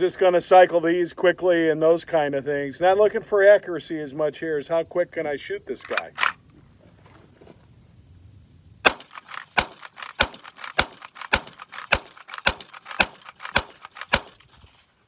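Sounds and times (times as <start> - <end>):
rifle lever clacking: 5.8 - 6.4, 8.9 - 14.7
rifle shots: 8.8 - 15.0.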